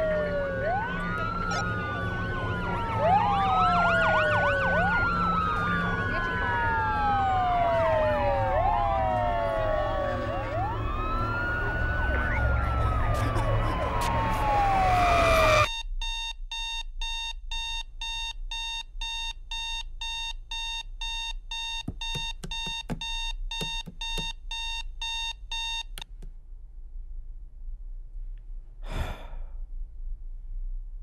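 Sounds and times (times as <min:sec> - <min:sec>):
rushing noise with siren-like wail: 0:00.0 - 0:15.7
alarm clock beeping: 0:15.7 - 0:26.0.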